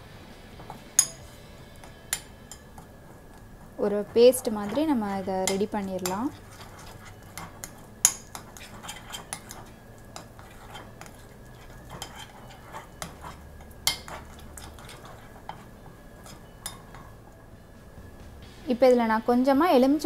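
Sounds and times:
spoon clinking against bowl: 1.0s - 1.4s, 5.4s - 15.6s
spoon scraping paste in bowl: 4.4s - 17.1s.

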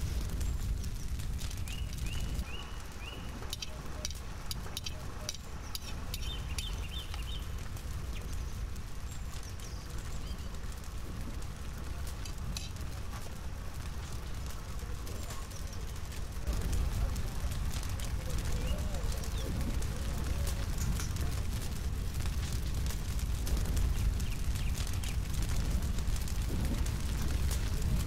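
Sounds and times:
low rumble: 0.0s - 28.0s
wood fire crackling: 0.0s - 28.0s
bird chirping: 0.4s - 10.6s.

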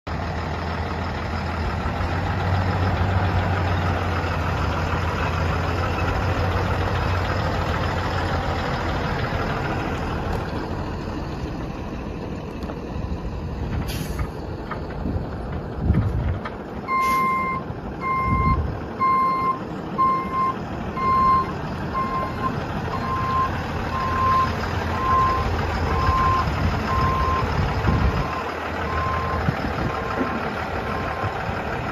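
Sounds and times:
truck diesel engine humming: 0.1s - 31.9s
short sharp air hisses: 13.9s - 14.3s, 17.0s - 17.3s
reversing alarm beeping: 16.9s - 27.5s, 28.2s - 30.4s.

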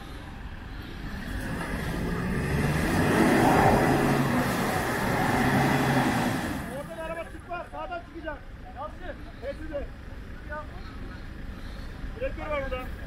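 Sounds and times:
car engine pulling under load: 0.0s - 7.2s.

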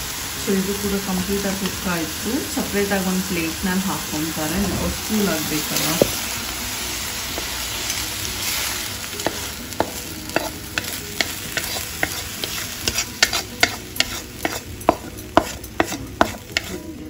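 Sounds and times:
food sizzling in a pan: 0.0s - 17.0s
spatula scraping a pan: 7.4s - 17.0s.

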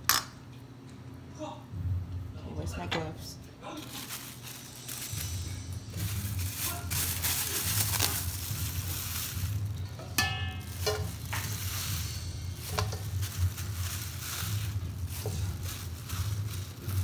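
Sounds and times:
plastic gloves rustling: 3.6s - 17.0s
steel bowl knock and ring: 10.2s - 11.0s.

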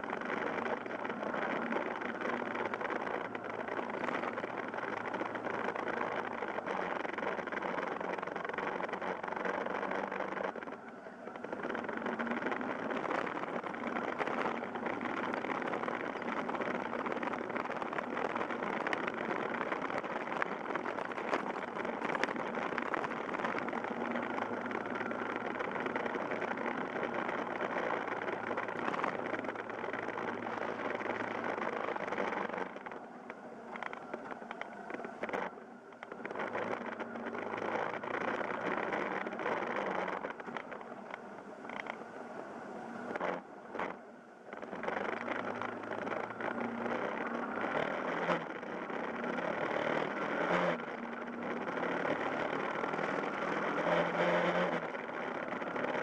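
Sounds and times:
motorcycle engine running: 0.0s - 42.0s, 43.1s - 56.0s
road and wind noise: 0.0s - 56.0s.

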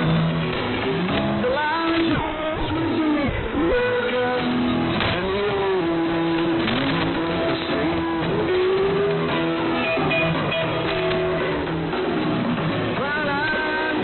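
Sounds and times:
guitar music over am radio: 0.0s - 14.0s.

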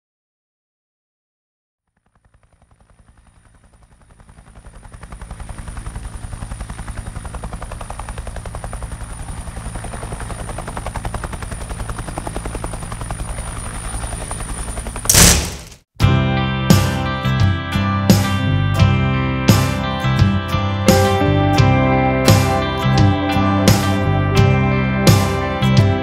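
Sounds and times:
helicopter rotor beating: 1.9s - 15.8s, 19.5s - 26.0s.

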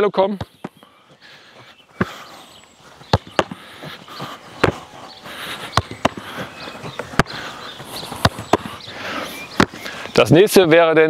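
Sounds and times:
football kicked and caught: 3.1s - 3.6s, 4.6s - 4.8s, 5.8s - 6.2s, 8.1s - 8.7s, 9.6s - 9.8s.

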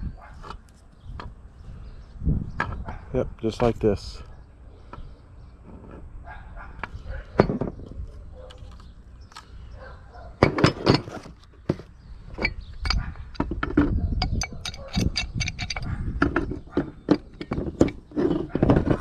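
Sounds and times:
metal parts clinking and knocking: 7.3s - 9.5s, 10.4s - 19.0s.

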